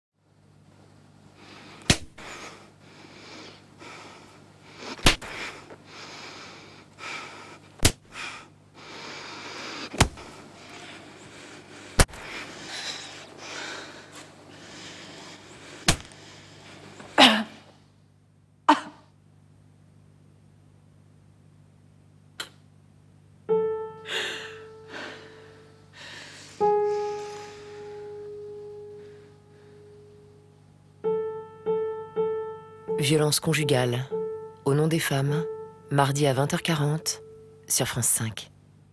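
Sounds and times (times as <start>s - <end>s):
woman gasping breaths: 1.5s - 16.6s, 24.0s - 28.4s
woman slapping her face: 1.8s - 2.1s, 5.0s - 5.4s, 7.8s - 8.0s, 15.8s - 16.1s
woman sobbing: 24.0s - 28.3s.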